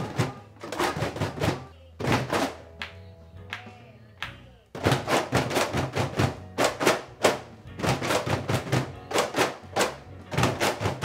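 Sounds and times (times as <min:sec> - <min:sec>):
cajon drums played by hand: 0:00.0 - 0:02.7, 0:04.8 - 0:11.0.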